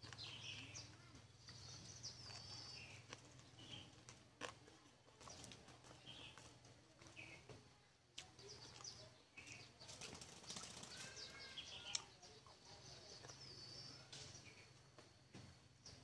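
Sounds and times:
faint bird chirps: 0.0 - 4.0, 8.2 - 16.0
chewing: 0.0 - 7.3, 8.1 - 9.7, 11.8 - 15.1.

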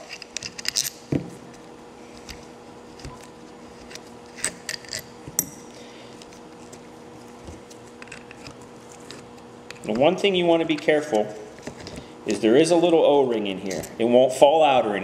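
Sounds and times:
metal bolts clicking and clinking: 0.0 - 1.0.

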